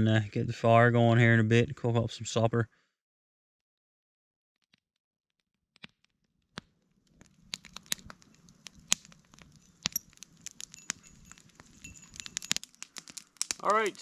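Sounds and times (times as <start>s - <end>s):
campfire crackling and snapping: 6.5s - 14.0s.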